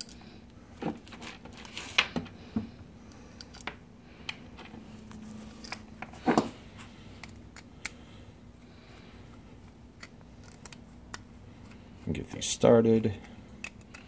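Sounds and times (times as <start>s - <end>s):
small metal parts clicking: 13.6s - 14.0s.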